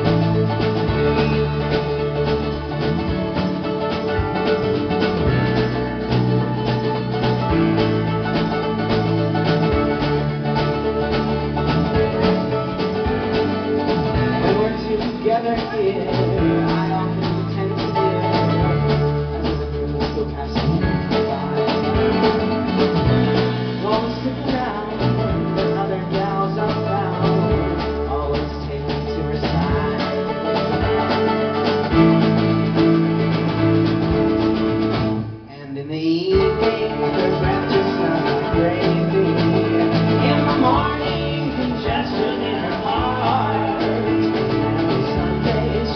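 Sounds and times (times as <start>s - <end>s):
strummed acoustic guitar: 0.0s - 35.5s, 36.2s - 45.9s
keyboard: 0.0s - 35.6s, 36.3s - 45.9s
mandolin: 0.0s - 45.9s
man singing: 13.8s - 31.2s, 35.5s - 45.9s.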